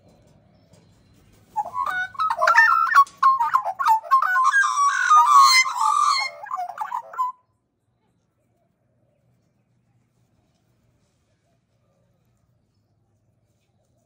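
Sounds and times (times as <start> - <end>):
magpies carolling: 1.3 - 7.4.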